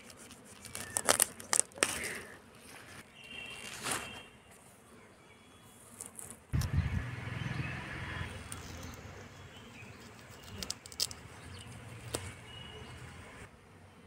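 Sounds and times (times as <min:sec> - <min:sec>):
faint bird chirp: 0:11.3 - 0:13.2.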